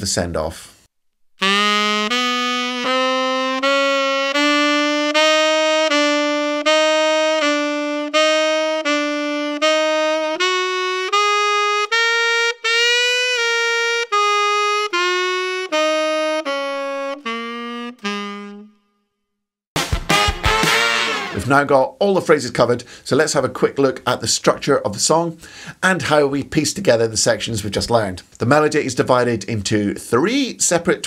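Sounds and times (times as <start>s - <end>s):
solo saxophone blues phrase: 1.4s - 18.8s, 19.9s - 22.0s.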